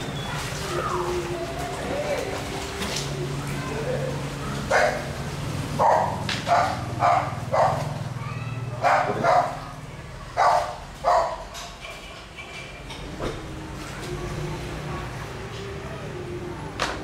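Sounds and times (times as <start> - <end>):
dog barking: 4.6 - 5.1, 5.8 - 7.9, 8.8 - 9.7, 10.4 - 11.4.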